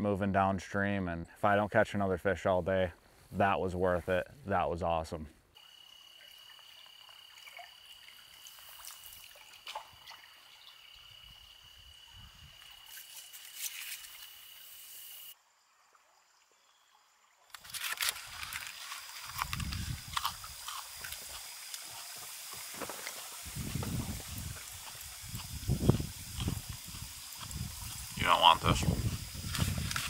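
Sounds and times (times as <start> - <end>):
light water sounds: 5.6 - 30.0
aluminium foil crinkling: 17.6 - 23.3
scattered ticks: 24.6 - 28.6.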